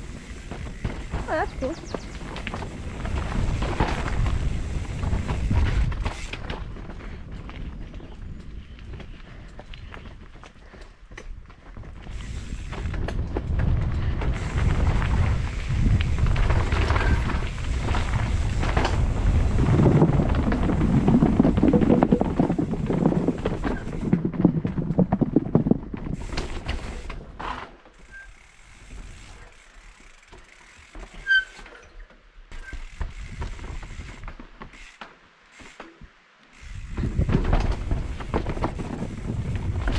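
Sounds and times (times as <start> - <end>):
wind on microphone: 0.0 - 10.3, 11.8 - 26.4, 36.6 - 39.9
bike rattling over bumps: 0.0 - 39.9
bike tyres on dirt: 0.0 - 39.9.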